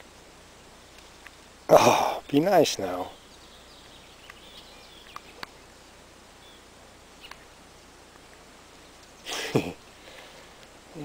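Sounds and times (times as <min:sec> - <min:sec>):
faint bird-like chirps: 0:00.6 - 0:08.0
soft clicks: 0:00.9 - 0:01.4, 0:03.8 - 0:05.8, 0:07.2 - 0:07.5.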